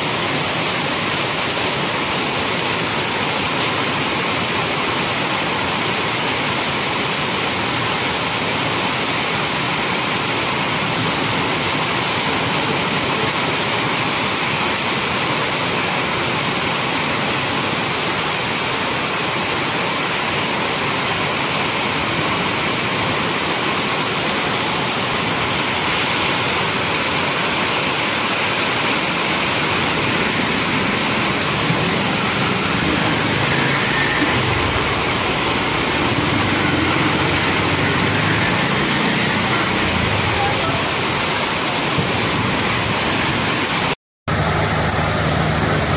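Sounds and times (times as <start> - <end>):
heavy rain on pavement: 0.0 - 45.9
low vehicle engine rumble: 44.3 - 45.9.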